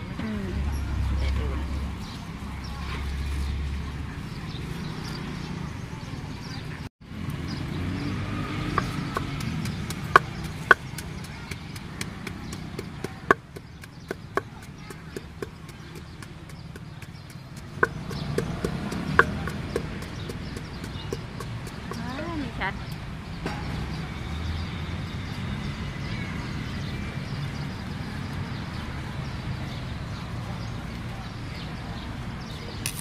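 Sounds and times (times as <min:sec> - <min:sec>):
wooden pestle knocking in mortar: 0:08.6 - 0:22.2.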